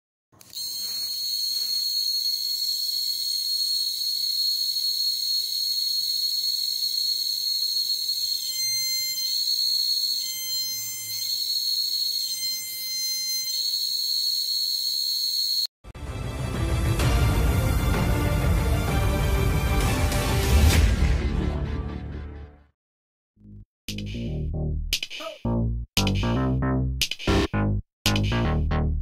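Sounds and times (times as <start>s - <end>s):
high-pitched buzzer tone: 0.4s - 15.7s.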